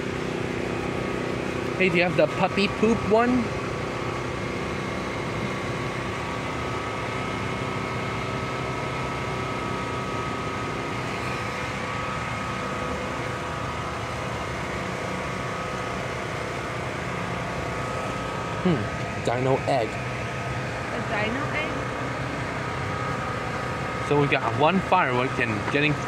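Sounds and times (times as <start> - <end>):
machine humming: 0.0 - 26.0.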